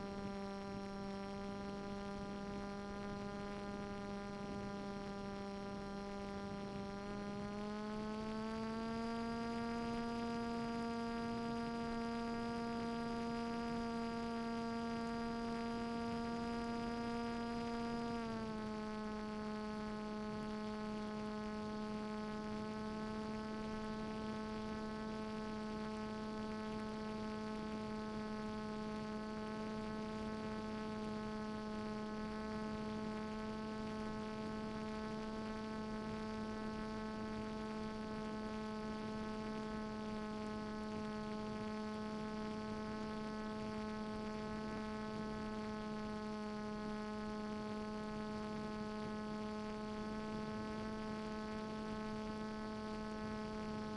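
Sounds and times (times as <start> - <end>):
electric motor and propeller whirring: 0.0 - 26.0.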